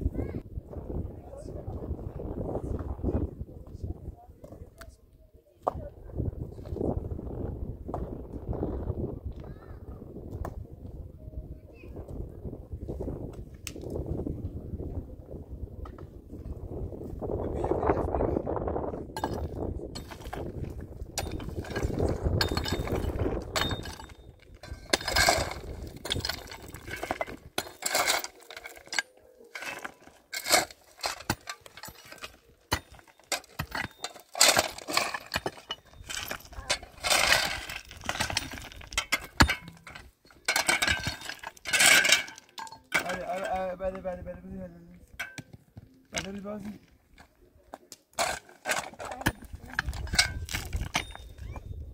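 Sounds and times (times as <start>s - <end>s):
hard objects clinking and scraping: 19.2s - 43.8s, 45.0s - 51.9s.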